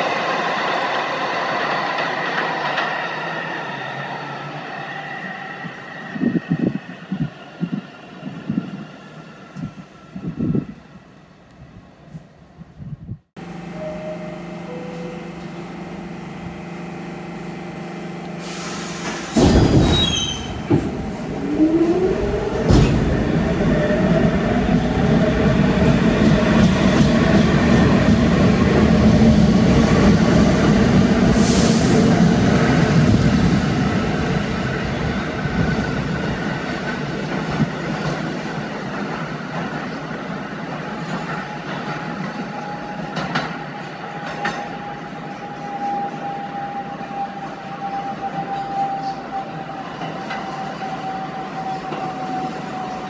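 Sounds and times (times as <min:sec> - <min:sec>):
subway train on rails: 0:00.0 - 0:53.0
wheel squeal: 0:18.4 - 0:20.8.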